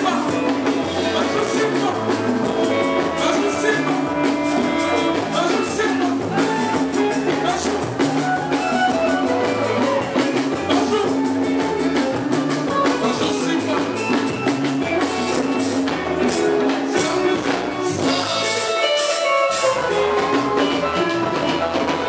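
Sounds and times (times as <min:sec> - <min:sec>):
person singing: 0:00.0 - 0:11.6, 0:16.2 - 0:22.0.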